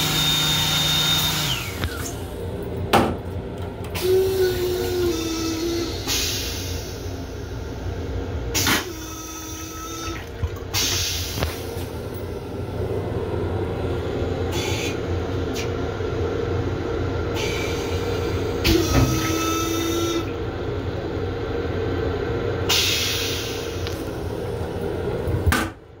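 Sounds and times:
toilet flush water hissing: 0:00.0 - 0:02.5, 0:04.0 - 0:15.7, 0:17.2 - 0:21.1, 0:22.4 - 0:25.5
valve whining tone: 0:00.0 - 0:02.5, 0:04.0 - 0:07.8, 0:08.5 - 0:12.8, 0:14.4 - 0:15.7, 0:17.2 - 0:20.4.

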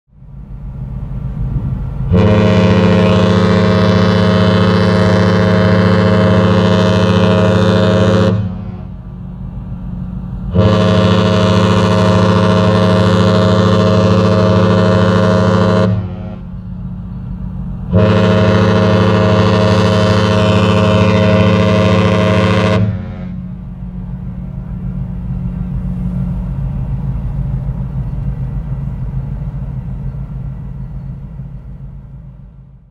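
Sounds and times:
ship horn blasts: 0:02.1 - 0:09.4, 0:10.0 - 0:32.6
low rumble: 0:20.1 - 0:32.9.

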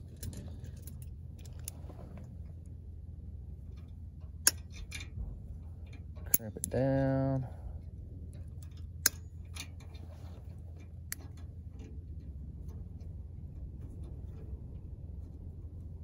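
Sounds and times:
steady low rumble: 0:00.0 - 0:16.0
locking pliers clicking and clinking: 0:04.4 - 0:05.1, 0:06.2 - 0:06.8, 0:08.5 - 0:10.0.

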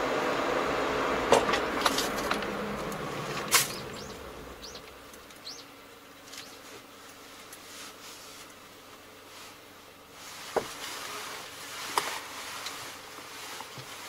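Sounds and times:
car road and engine noise: 0:00.0 - 0:14.0
faint chirps: 0:03.7 - 0:06.7.

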